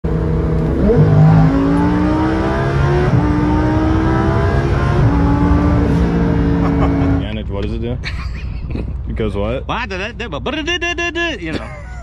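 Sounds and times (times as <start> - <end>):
car engine accelerating hard: 0.1 - 7.4.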